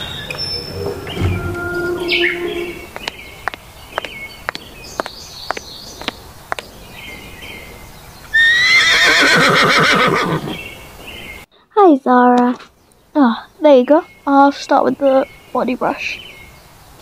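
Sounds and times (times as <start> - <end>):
horse whinny: 8.4 - 10.6.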